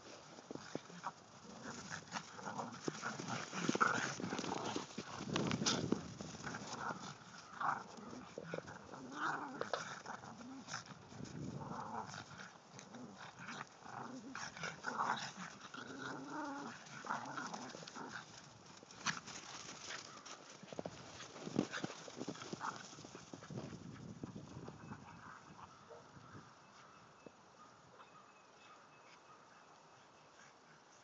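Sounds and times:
scuffling in snow: 0:00.0 - 0:12.3
dogs play-growling: 0:00.1 - 0:26.0.

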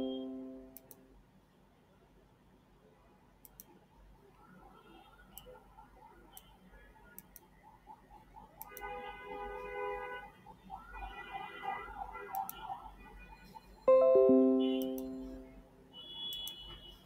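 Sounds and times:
computer mouse clicks: 0:00.7 - 0:01.0, 0:03.4 - 0:03.8, 0:06.3 - 0:07.5, 0:08.6 - 0:08.9, 0:12.3 - 0:12.7, 0:14.8 - 0:15.1, 0:16.3 - 0:16.6.

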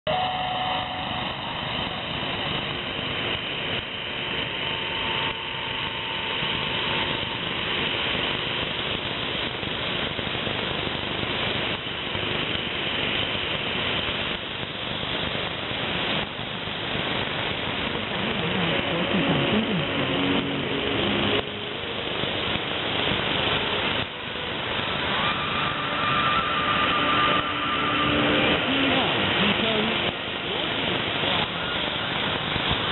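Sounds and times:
faint steady whistles: 0:00.1 - 0:08.0, 0:21.7 - 0:28.8, 0:31.2 - 0:32.9
dense radio rushing noise: 0:00.1 - 0:32.9.

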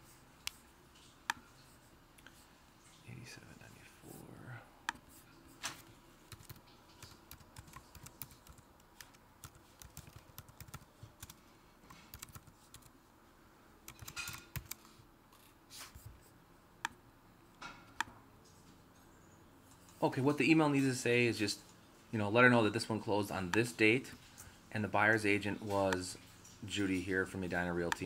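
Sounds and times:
faint computer keyboard typing: 0:05.8 - 0:12.9, 0:13.8 - 0:15.0, 0:25.6 - 0:28.0.

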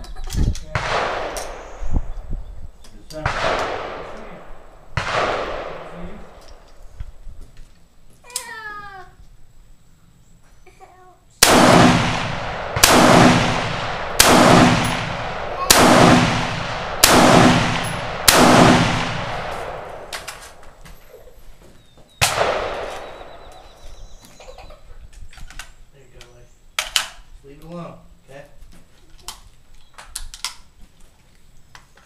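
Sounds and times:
rifle shots: 0:00.7 - 0:01.8, 0:03.2 - 0:06.6, 0:11.4 - 0:20.8, 0:22.2 - 0:23.8.

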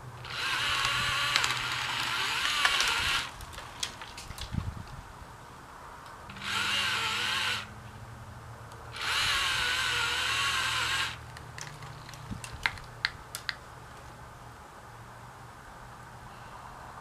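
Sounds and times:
electric chainsaw cutting: 0:00.0 - 0:03.3, 0:06.3 - 0:07.7, 0:08.9 - 0:11.2.

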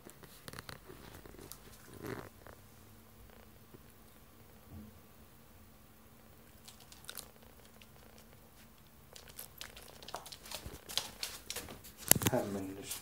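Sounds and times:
sharp clicks and crackly rustling: 0:00.0 - 0:02.6, 0:06.5 - 0:13.0
dog pawing and scrabbling: 0:09.6 - 0:13.0.

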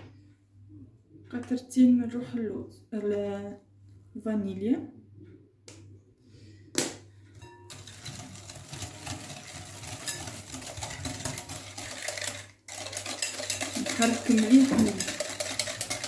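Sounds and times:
whisk rattling in glass bowl: 0:07.4 - 0:16.0.

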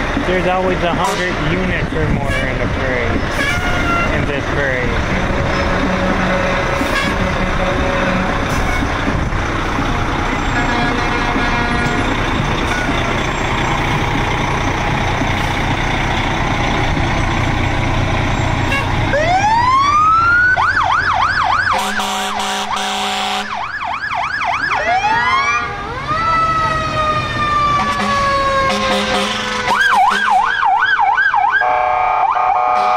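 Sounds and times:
fire truck engines running: 0:00.0 - 0:32.9
short low horn blasts: 0:03.4 - 0:04.3, 0:05.1 - 0:08.9, 0:10.5 - 0:12.1, 0:18.6 - 0:19.0, 0:21.7 - 0:23.6, 0:27.8 - 0:30.4, 0:31.6 - 0:32.9
siren yelp and wail: 0:19.1 - 0:32.9.

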